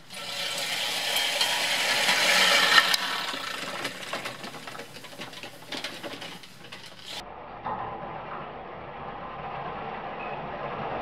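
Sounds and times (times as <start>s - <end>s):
reel mower blades whirring: 0.0s - 7.2s.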